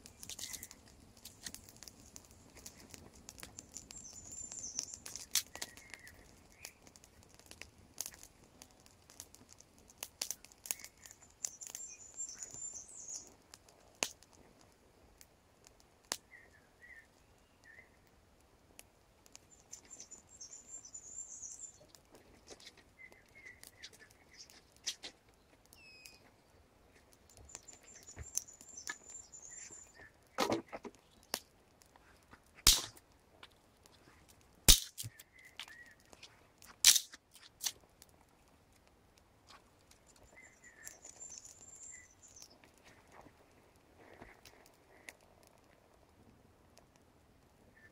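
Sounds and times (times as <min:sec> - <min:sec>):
campfire crackling and popping: 0:00.0 - 0:47.9
bird twittering trills: 0:03.8 - 0:06.8, 0:10.8 - 0:13.3, 0:19.5 - 0:21.9, 0:25.8 - 0:26.2, 0:27.5 - 0:30.2, 0:40.3 - 0:42.6.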